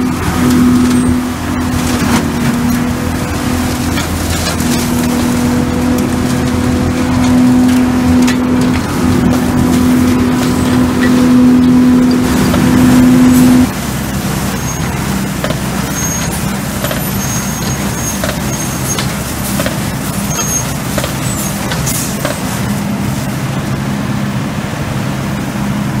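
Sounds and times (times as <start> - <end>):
leaf vacuum engine drone: 0.0 - 26.0
debris clicking in hose: 0.2 - 23.4.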